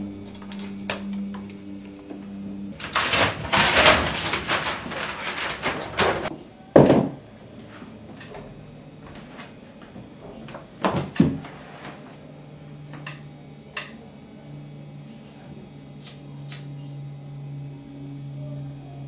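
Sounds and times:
film projector motor humming: 0:00.0 - 0:19.0
rustling and clatter: 0:02.7 - 0:06.3.

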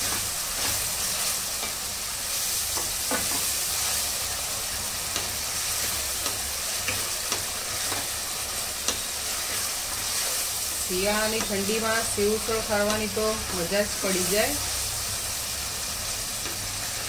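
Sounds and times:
vegetables sizzling in oil: 0:00.0 - 0:17.0
spatula scraping and tapping pan: 0:02.7 - 0:03.6, 0:05.0 - 0:10.4, 0:11.3 - 0:11.8.

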